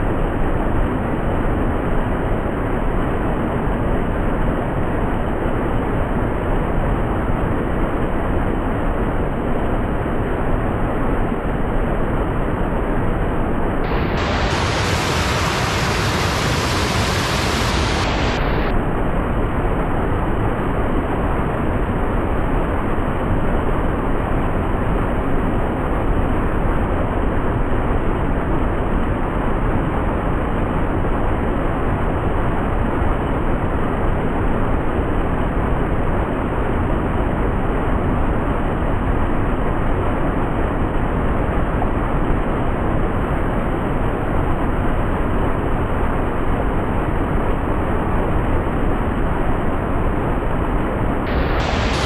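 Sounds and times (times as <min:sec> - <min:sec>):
water rushing over rock ledges: 0:13.9 - 0:18.7, 0:51.3 - 0:52.0.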